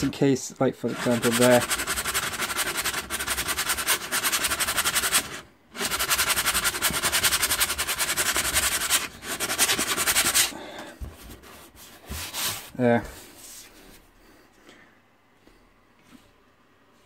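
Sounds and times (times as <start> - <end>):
sandpaper rasping on canvas: 0.9 - 10.6.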